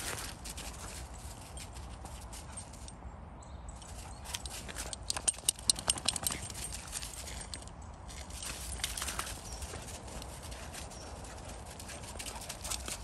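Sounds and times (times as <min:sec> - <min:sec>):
snow crunching under paws: 0:00.0 - 0:02.6.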